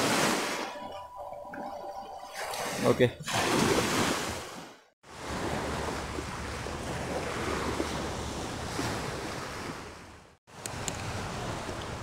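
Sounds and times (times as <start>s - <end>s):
small waves washing on shore: 2.3s - 12.0s.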